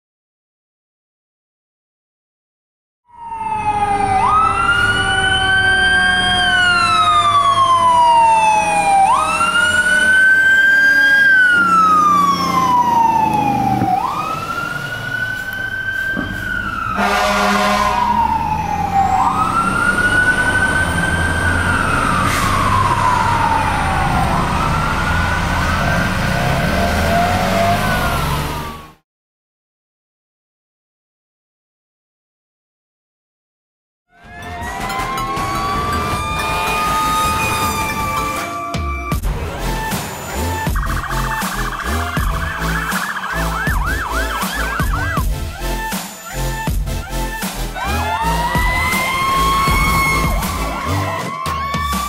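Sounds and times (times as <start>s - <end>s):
fire truck siren sweeping: 3.1s - 29.0s, 34.1s - 52.0s
truck engine rumbling: 3.4s - 29.0s, 34.2s - 52.0s
truck horn blast: 16.9s - 18.2s.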